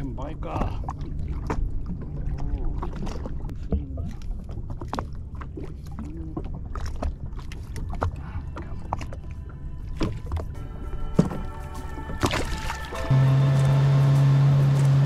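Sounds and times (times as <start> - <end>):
water lapping against hull: 0.0 - 15.0.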